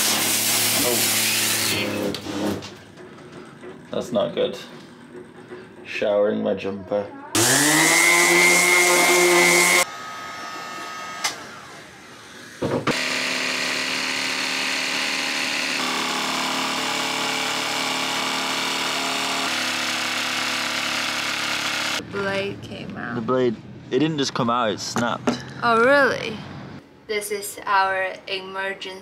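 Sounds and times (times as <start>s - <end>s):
orbital sander on wood: 0.0s - 2.0s, 7.4s - 22.0s
jigsaw cutting plywood: 0.0s - 2.6s, 7.4s - 22.0s.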